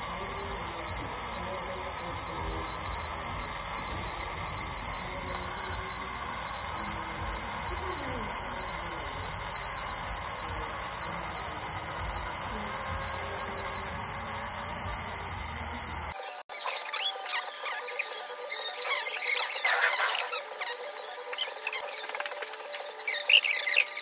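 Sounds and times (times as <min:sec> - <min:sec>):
dental suction hiss: 0:00.0 - 0:16.2.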